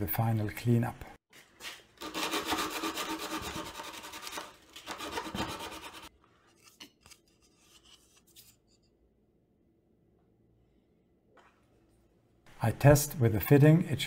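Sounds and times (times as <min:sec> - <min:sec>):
sandpaper rubbing plastic: 0:02.0 - 0:06.1.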